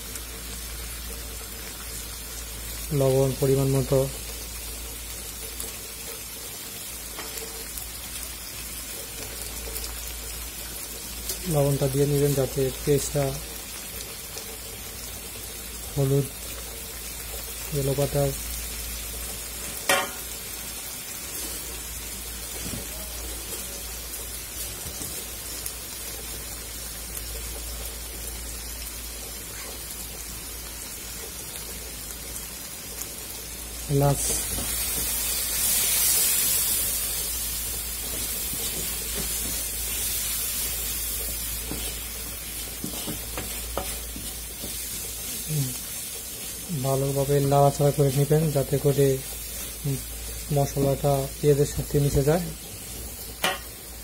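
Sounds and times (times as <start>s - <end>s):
onions sizzling in hot oil: 0.0s - 54.0s
faint pops of frying: 7.0s - 7.8s, 19.1s - 20.6s, 21.4s - 27.9s, 34.1s - 45.4s, 53.2s - 54.0s.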